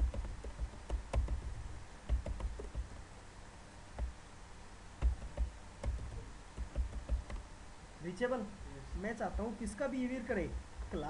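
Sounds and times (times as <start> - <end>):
computer keyboard keystrokes: 0.0 - 3.0, 5.0 - 7.4.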